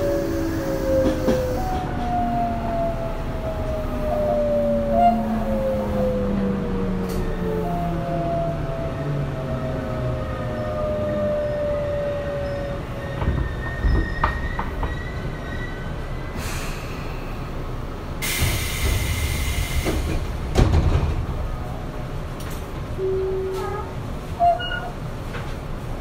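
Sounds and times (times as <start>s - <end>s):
train clunks: 13.0s - 15.7s, 18.2s - 25.8s
compressed air hiss: 18.2s - 20.1s
high brake squeal: 24.4s - 25.0s.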